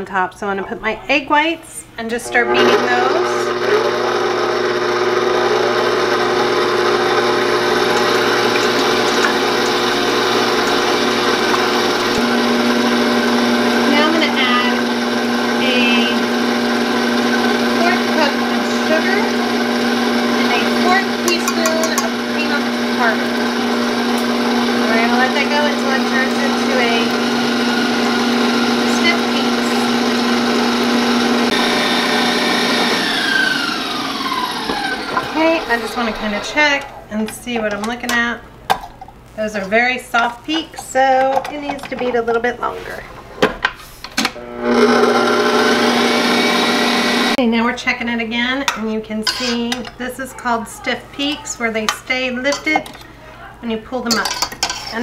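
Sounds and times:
stand mixer motor hum: 2.3s - 36.6s, 44.4s - 47.4s.

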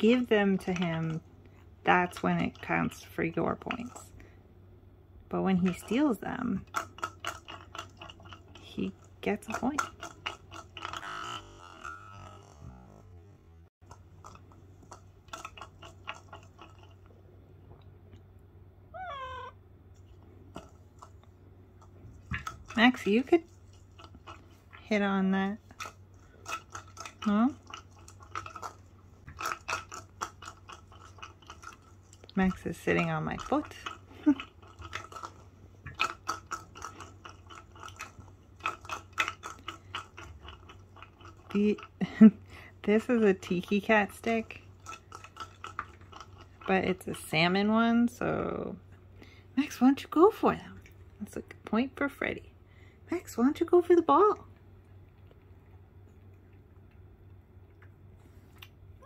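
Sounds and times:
treats rattling in plastic ball: 25.6s - 42.4s.

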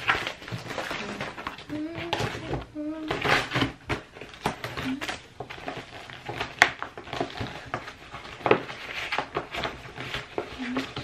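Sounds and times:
envelope crinkling and rustling: 0.0s - 11.0s.

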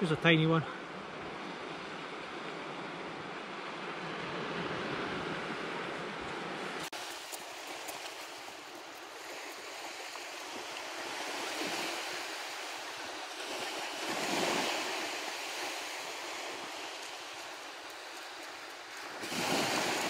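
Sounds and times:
surf washing onto beach: 1.3s - 20.0s
wind on microphone: 9.2s - 20.0s.

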